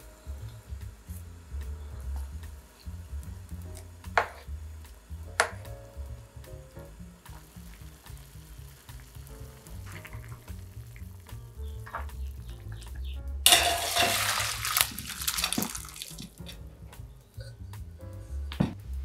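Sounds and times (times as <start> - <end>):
wooden spoon knocking in pot: 4.1 - 4.4
water pouring into strainer: 13.5 - 16.4.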